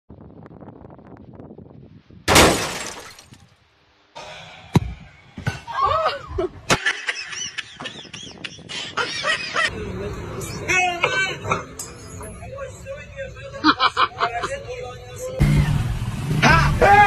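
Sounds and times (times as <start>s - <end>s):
loud crash: 2.3s - 3.4s.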